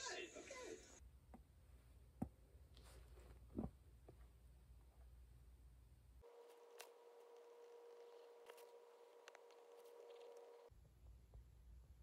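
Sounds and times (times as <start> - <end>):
electrical hum: 3.5 - 12.0.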